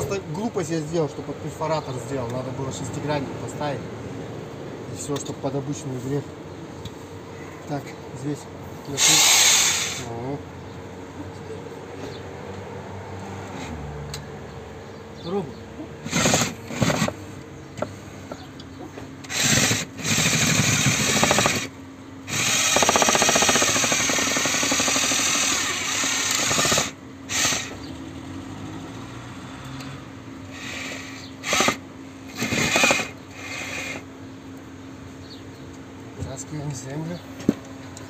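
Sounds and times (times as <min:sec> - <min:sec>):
rotary hammer drilling into soil: 0:09.0 - 0:10.1, 0:16.0 - 0:17.2, 0:19.3 - 0:21.7, 0:22.3 - 0:27.8, 0:30.6 - 0:34.0.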